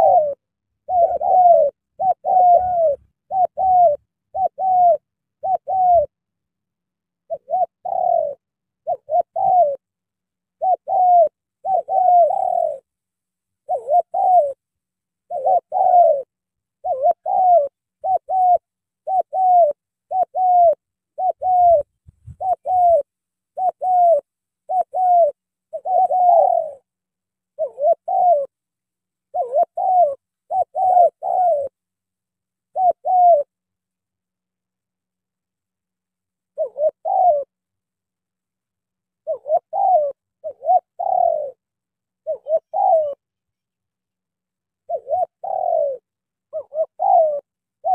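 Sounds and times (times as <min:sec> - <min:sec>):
doves cooing: 0:00.0 - 0:06.2, 0:07.2 - 0:09.9, 0:10.5 - 0:12.9, 0:13.6 - 0:14.6, 0:15.2 - 0:26.9, 0:27.5 - 0:28.6, 0:29.3 - 0:31.8, 0:32.7 - 0:33.6, 0:36.5 - 0:37.6, 0:39.2 - 0:43.3, 0:44.8 - 0:47.9.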